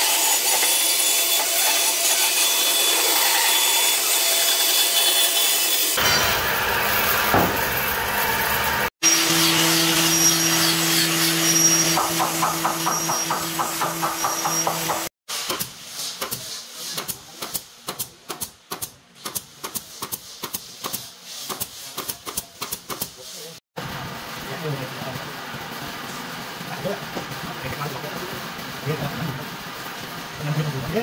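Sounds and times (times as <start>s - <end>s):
band saw: 0.0s - 15.1s.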